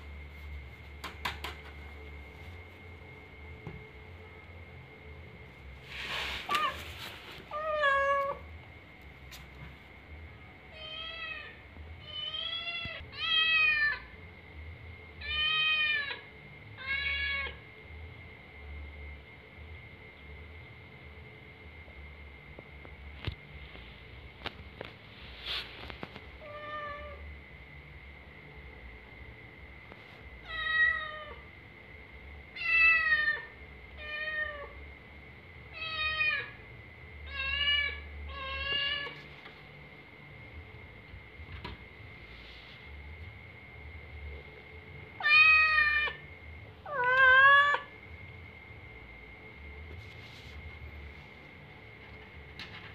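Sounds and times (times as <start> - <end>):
cat meowing: 7.5 - 8.5, 45.2 - 46.2, 46.8 - 47.9
kitten meowing: 46.9 - 47.9.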